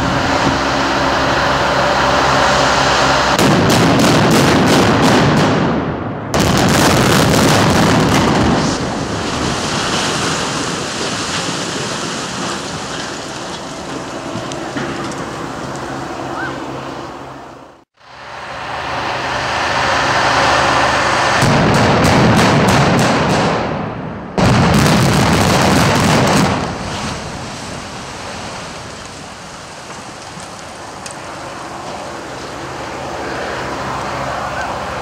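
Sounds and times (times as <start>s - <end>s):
settling debris rumble: 0.0s - 16.8s, 20.4s - 35.0s
building collapsing rumble: 0.0s - 17.0s, 18.2s - 33.2s
demolition charges exploding: 3.3s - 15.4s, 21.2s - 30.4s.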